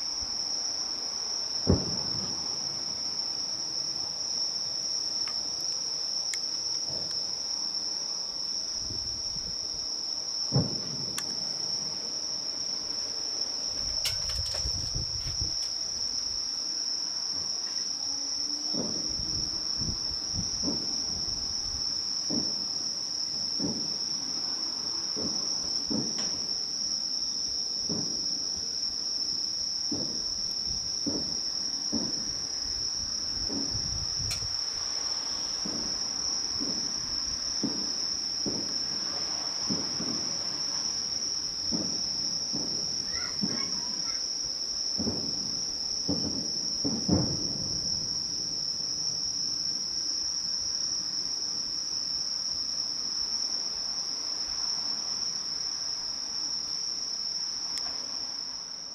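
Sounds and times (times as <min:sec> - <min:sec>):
crickets trilling: 0:00.0 - 0:58.9
distant fireworks thuds: 0:01.6 - 0:02.8, 0:06.8 - 0:07.2, 0:10.5 - 0:12.1, 0:13.6 - 0:15.8, 0:18.7 - 0:21.6, 0:22.2 - 0:24.1, 0:25.1 - 0:26.6, 0:27.8 - 0:28.3, 0:29.9 - 0:32.4, 0:33.4 - 0:40.8, 0:41.6 - 0:44.2, 0:45.0 - 0:49.1.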